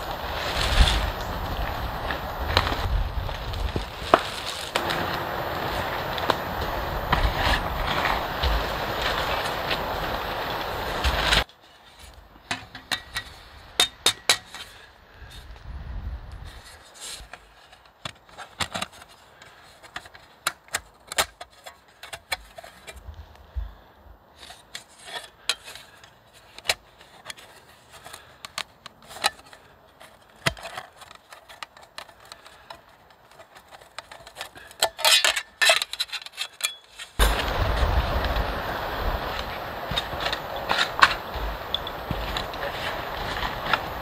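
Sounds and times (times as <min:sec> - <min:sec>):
steady rushing noise: 0:00.0 - 0:11.5, 0:37.2 - 0:44.0.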